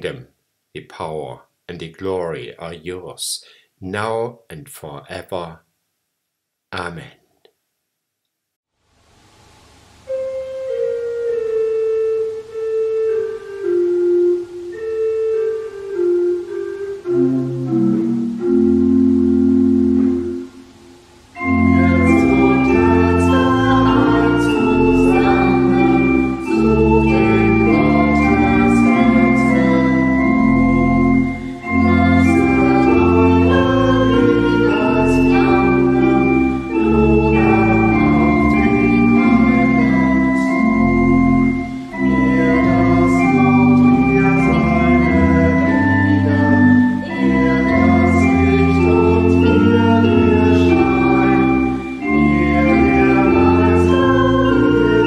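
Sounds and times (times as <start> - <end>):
pipe organ playing hymn: 10.0 - 55.0
people singing a hymn: 21.4 - 55.0.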